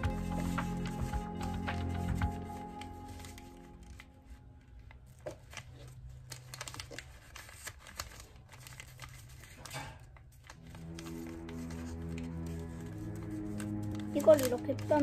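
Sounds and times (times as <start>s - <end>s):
background music: 0.0s - 4.8s, 10.5s - 15.0s
paper rustling and crinkling: 0.0s - 15.0s.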